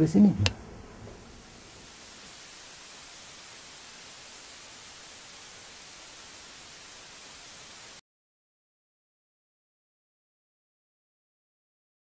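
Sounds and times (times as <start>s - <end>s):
television static hiss: 0.0s - 8.0s.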